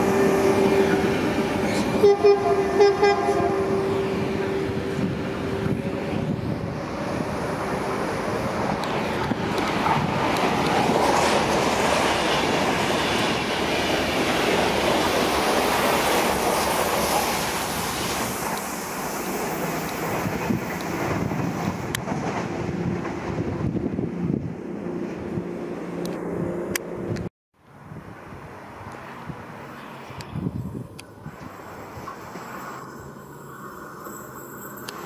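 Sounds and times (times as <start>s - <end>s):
train horn: 0.0s - 5.7s
train wheels clattering on rails: 8.5s - 23.8s.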